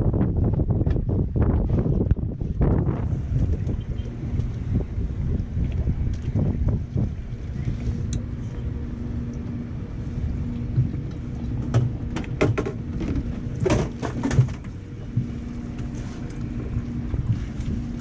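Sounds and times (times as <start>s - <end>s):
outboard motor idling: 0.0s - 18.0s
wind on microphone: 0.0s - 18.0s
sharp knocks and clatters: 11.6s - 15.3s.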